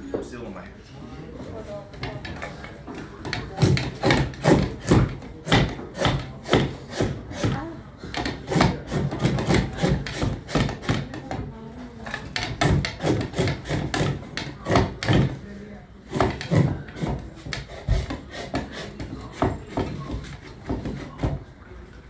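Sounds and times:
knife shaving wood: 3.2 - 11.2, 12.1 - 15.4, 16.0 - 21.4.

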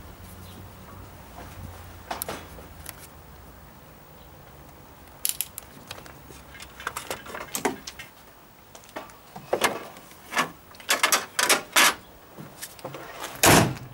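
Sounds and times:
clicks and knocks of engine parts: 5.1 - 13.9.

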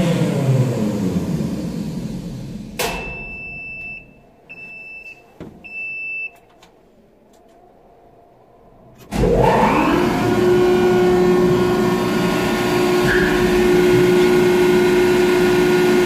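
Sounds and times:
crane motor winding down: 0.0 - 2.9, 9.1 - 16.0
high alarm beeps: 3.0 - 6.4.

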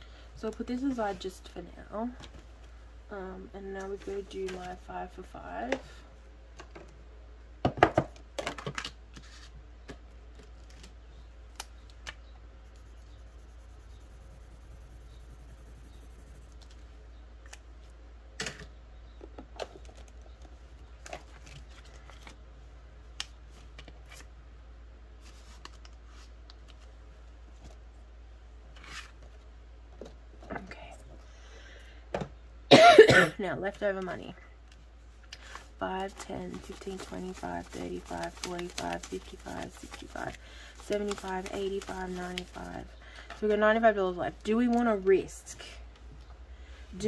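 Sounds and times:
paper rustling: 35.4 - 43.5.

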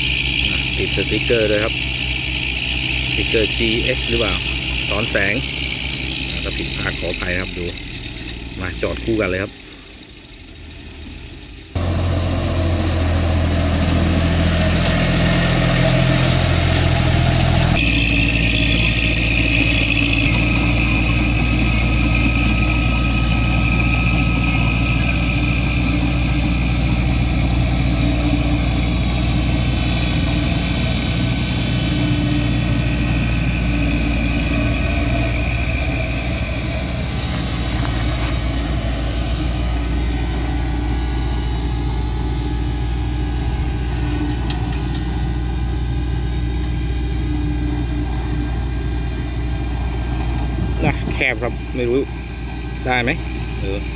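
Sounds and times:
heavy diesel engines running: 0.0 - 53.9.

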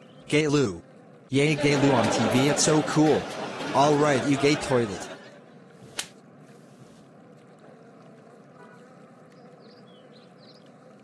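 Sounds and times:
outdoor ambience hiss: 5.3 - 11.0.

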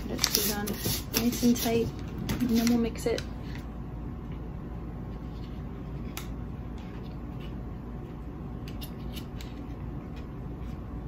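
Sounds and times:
paper crinkling: 0.0 - 3.6
low background hum: 0.0 - 11.0.

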